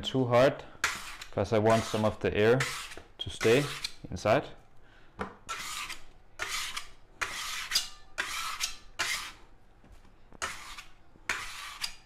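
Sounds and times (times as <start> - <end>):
bench knife scraping countertop: 0.8 - 4.0, 5.5 - 9.4, 10.4 - 12.0.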